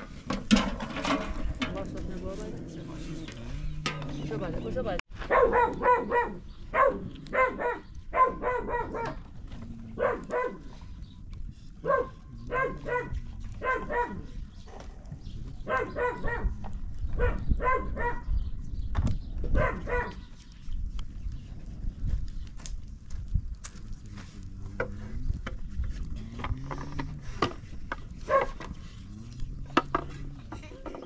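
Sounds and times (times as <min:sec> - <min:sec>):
dog barking: 0:05.2 - 0:09.2, 0:10.0 - 0:10.7, 0:11.8 - 0:14.8, 0:15.6 - 0:16.6, 0:17.2 - 0:18.3, 0:19.5 - 0:20.3, 0:28.2 - 0:28.6.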